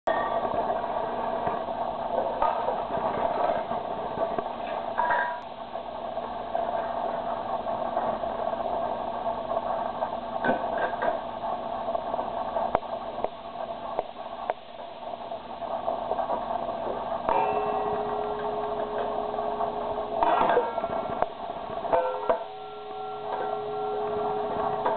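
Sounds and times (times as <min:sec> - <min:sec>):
metal bowls clinking: 0:17.3 - 0:21.3, 0:21.9 - 0:24.9.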